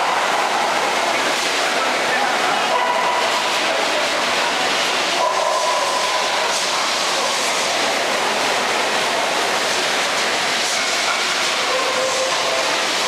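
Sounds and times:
busy indoor hall background noise: 0.0s - 13.0s.

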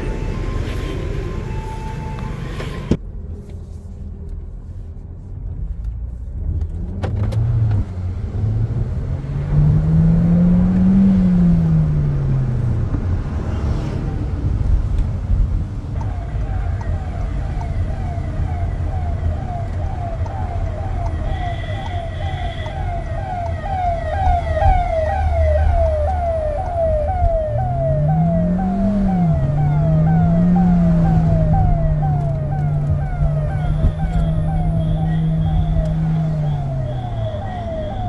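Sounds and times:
ambulance siren yelp: 0.0s - 2.9s, 15.9s - 38.0s
road noise inside car: 0.0s - 38.0s
car engine revving: 6.7s - 14.6s, 24.1s - 38.0s.

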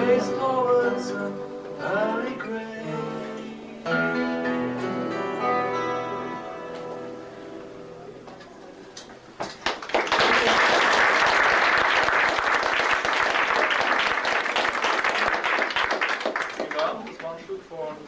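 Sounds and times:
guitar chord ringing: 0.0s - 8.2s
audience applause: 9.4s - 17.4s.

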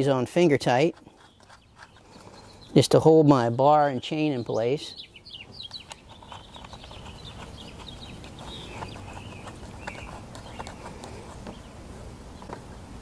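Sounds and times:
faint bird chirps: 4.4s - 10.8s.

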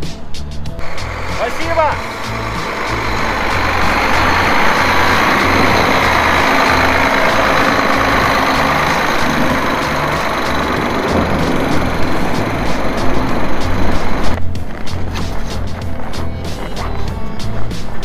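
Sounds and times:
vehicle engine and road noise: 0.0s - 18.0s.

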